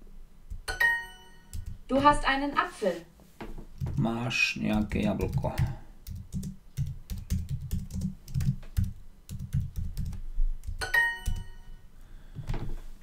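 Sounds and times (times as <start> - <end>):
keyboard typing: 0.5 - 2.1, 3.8 - 11.6
bright app chime: 0.7 - 1.5, 10.8 - 11.8.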